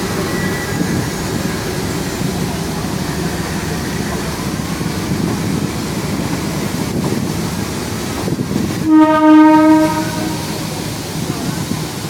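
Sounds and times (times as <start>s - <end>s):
train rolling past platform: 0.0s - 12.0s
wind on microphone: 4.4s - 12.0s
loud train horn: 8.8s - 10.8s.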